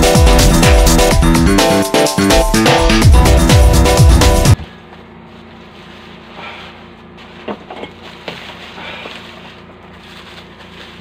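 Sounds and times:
background music: 0.0s - 4.6s
steady low hum: 2.4s - 11.0s
plastic and bubble wrap rustling: 5.2s - 11.0s.

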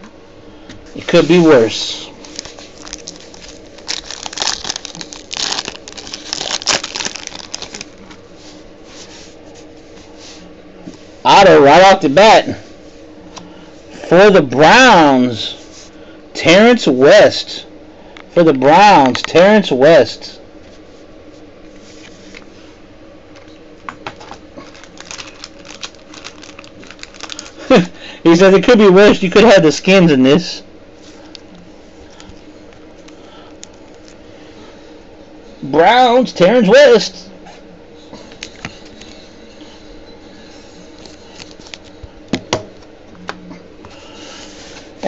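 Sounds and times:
low steady hum: 0.0s - 45.0s
foil wrapper tearing and crinkling: 2.2s - 8.0s, 24.6s - 27.9s, 33.0s - 34.2s.

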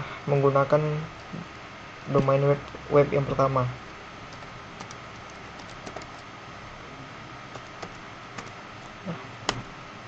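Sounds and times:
keyboard key clicks: 4.3s - 6.2s, 7.5s - 8.6s.

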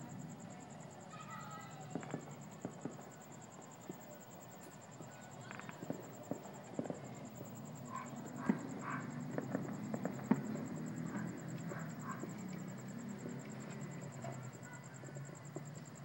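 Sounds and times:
distant fireworks popping and crackling: 0.0s - 16.0s
sharp firework cracks: 1.8s - 3.2s, 5.4s - 11.7s.

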